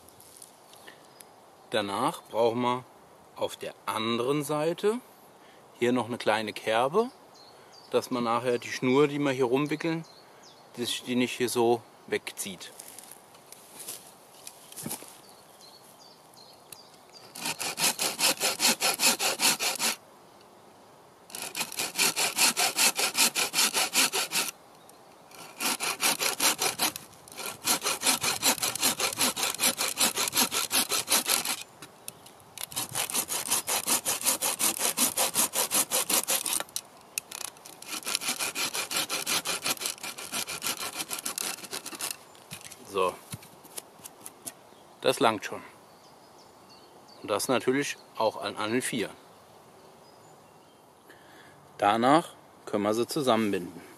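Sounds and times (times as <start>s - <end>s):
bow saw cutting branch: 17.3s - 20.0s, 21.3s - 24.6s, 25.3s - 31.7s, 32.6s - 42.9s.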